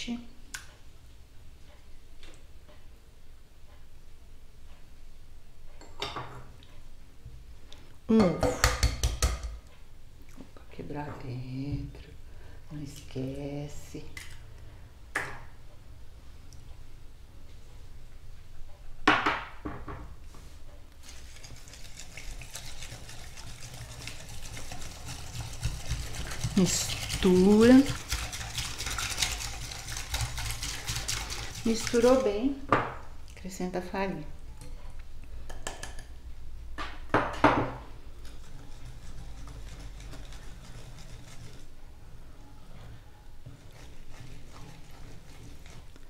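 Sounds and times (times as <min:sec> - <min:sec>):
batter stirred in a ceramic bowl: 0:21.0 - 0:32.6, 0:38.1 - 0:41.8, 0:43.4 - 0:46.0.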